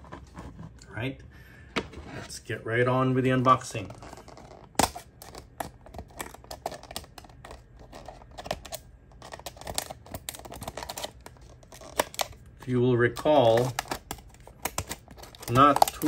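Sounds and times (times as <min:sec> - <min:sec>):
plastic crackling: 0:03.7 - 0:16.0
scissors snipping plastic: 0:13.4 - 0:16.0.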